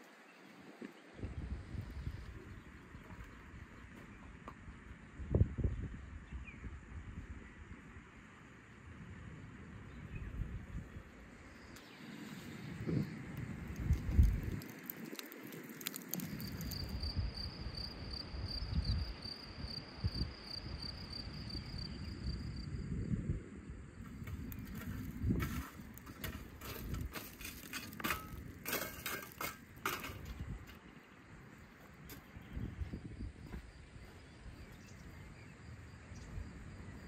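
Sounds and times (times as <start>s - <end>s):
charcoal clattering from shovel: 24.3s - 30.6s.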